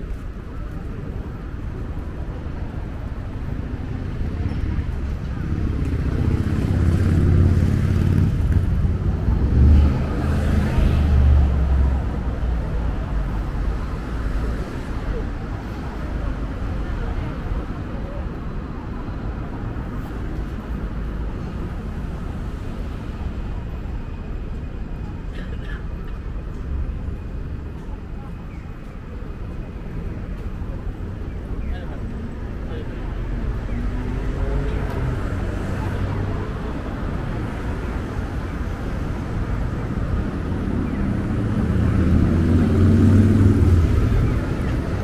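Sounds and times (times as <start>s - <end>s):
low street rumble: 0.0s - 45.0s
vehicle engine humming: 19.6s - 45.0s
murmur of voices: 23.0s - 45.0s.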